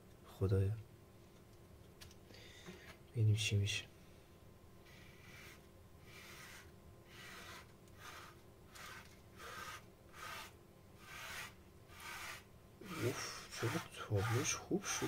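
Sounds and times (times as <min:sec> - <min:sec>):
palette knife scraping paint: 0:04.9 - 0:15.0.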